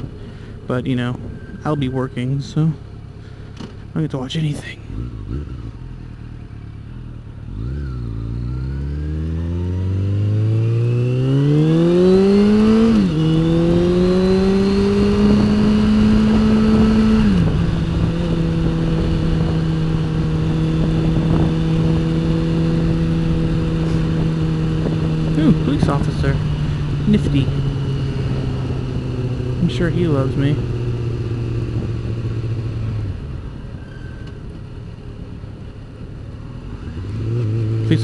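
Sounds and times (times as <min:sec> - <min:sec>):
motorcycle engine accelerating: 0:00.0 - 0:38.0
wind rush: 0:11.8 - 0:30.1, 0:31.0 - 0:33.4.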